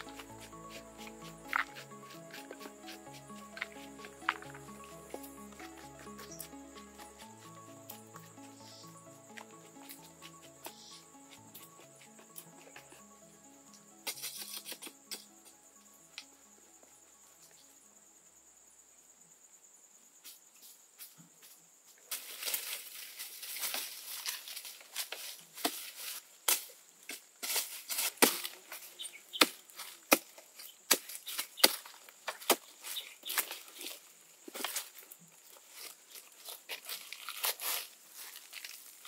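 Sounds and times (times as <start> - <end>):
leaves and twigs crackling: 0.0 - 13.1, 21.9 - 39.0
faint insect buzz: 0.0 - 26.9.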